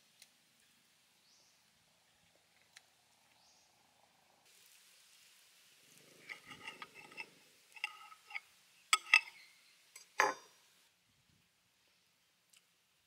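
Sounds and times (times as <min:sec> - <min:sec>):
crunching scrape with ring: 0:06.2 - 0:08.4.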